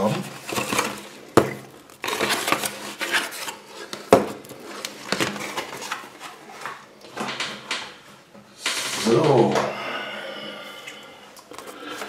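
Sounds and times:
foil and cardboard rustling: 0:00.0 - 0:06.9.

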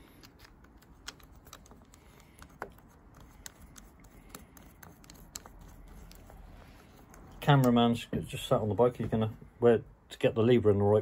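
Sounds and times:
small clicks and taps of metal parts: 0:00.0 - 0:06.3.

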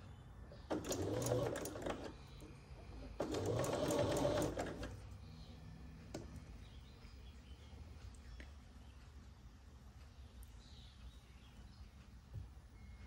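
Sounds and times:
sewing machine stitching: 0:00.6 - 0:02.2, 0:03.0 - 0:05.0.

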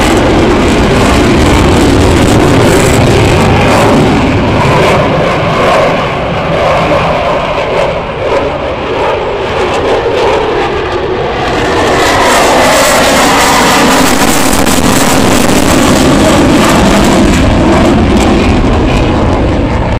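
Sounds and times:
jet fighter roaring: 0:00.0 - 0:19.9.

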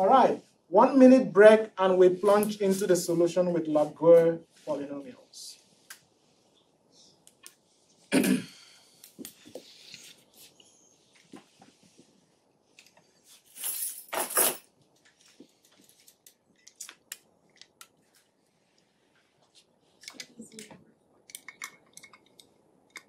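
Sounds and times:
small clicks and rustles: 0:14.8 - 0:23.0.

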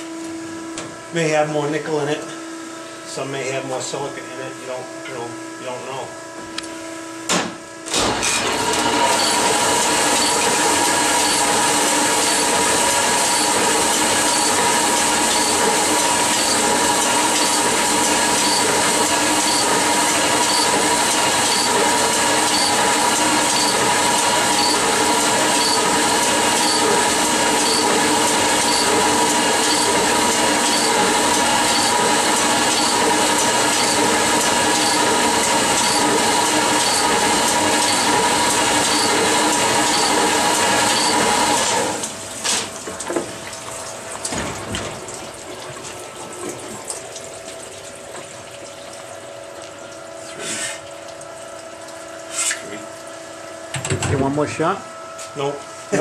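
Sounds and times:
honing machine grinding hiss: 0:08.8 - 0:35.1.

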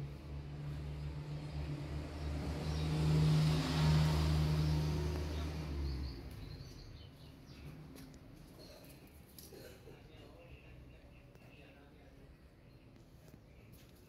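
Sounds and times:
vehicle driving past: 0:00.0 - 0:08.6.

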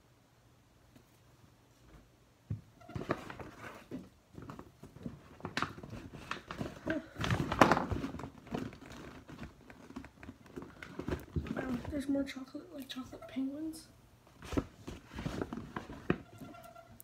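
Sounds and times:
paper bag rustling: 0:02.9 - 0:12.1, 0:14.4 - 0:17.0.

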